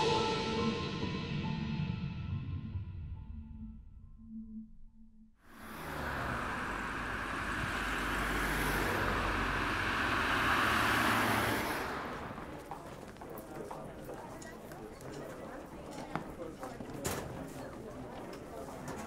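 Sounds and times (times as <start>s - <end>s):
vehicle passing by: 5.5s - 13.8s.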